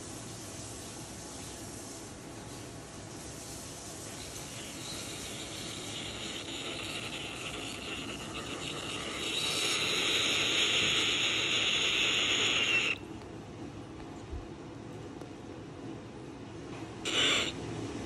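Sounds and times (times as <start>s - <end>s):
cockatoo hissing harshly: 4.2s - 13.0s, 17.1s - 17.6s.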